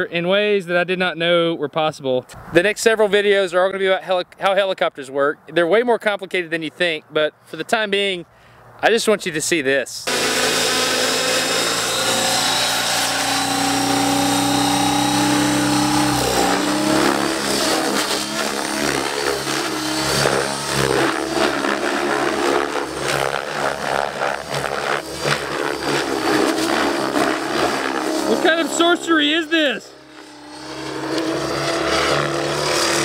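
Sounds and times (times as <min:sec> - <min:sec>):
model helicopter rotor whine: 0:10.1 - 0:33.0.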